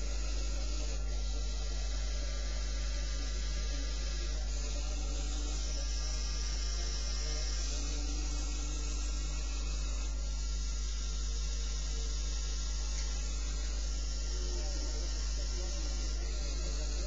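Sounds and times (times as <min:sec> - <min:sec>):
electric motors whirring: 0:00.0 - 0:17.0.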